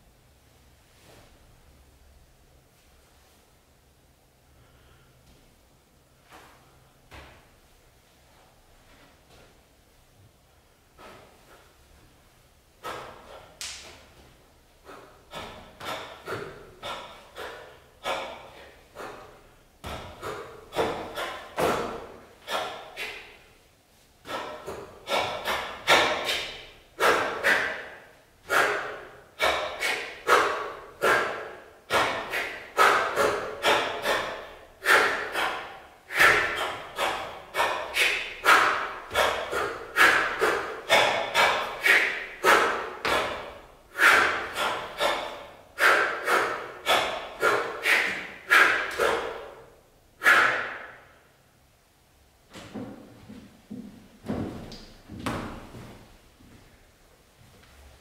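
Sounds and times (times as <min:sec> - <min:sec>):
hands slapping the body: 0:13.6 - 0:14.1.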